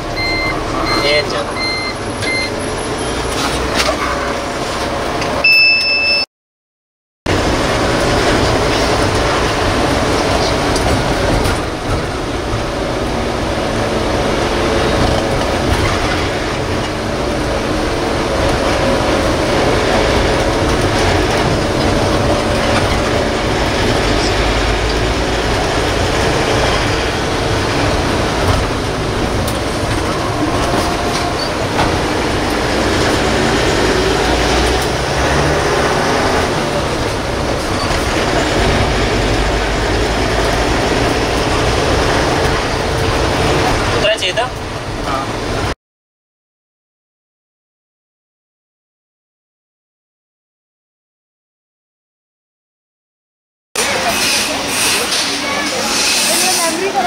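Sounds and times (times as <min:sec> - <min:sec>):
bus engine and road rumble: 0:00.0 - 0:06.2, 0:07.3 - 0:45.8, 0:53.8 - 0:57.0
short high electronic beep: 0:05.4 - 0:06.3.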